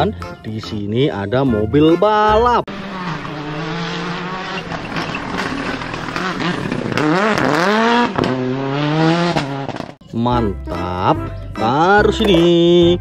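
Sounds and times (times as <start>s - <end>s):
rally car engine revving: 2.7s - 10.0s.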